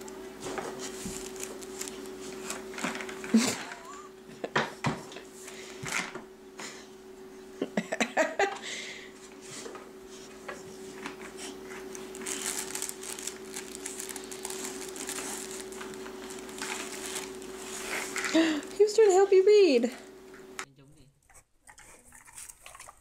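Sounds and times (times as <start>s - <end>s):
steady low hum: 0.0s - 23.0s
scratchy rustling: 10.8s - 18.2s.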